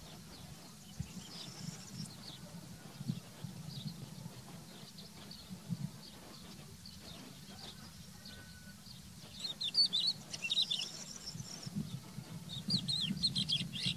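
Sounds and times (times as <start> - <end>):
lark singing: 12.5 - 13.9.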